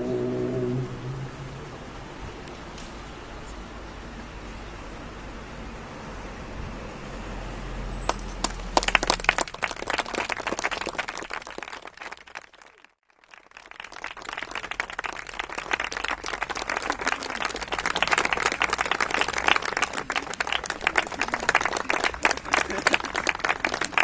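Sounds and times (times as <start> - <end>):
audience applauding: 8.1 - 24.0.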